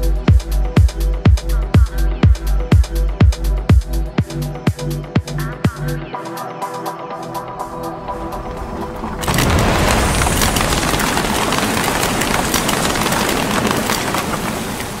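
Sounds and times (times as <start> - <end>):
electronic music: 0.0 - 9.5
cartoon bomb blast boom: 8.6 - 11.4
rapid crackling pops: 9.0 - 15.0.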